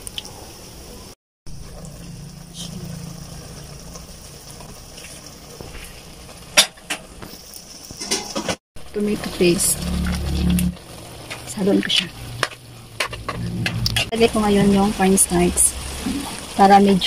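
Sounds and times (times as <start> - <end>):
stew simmering with bubbling hiss: 0.0 - 17.0.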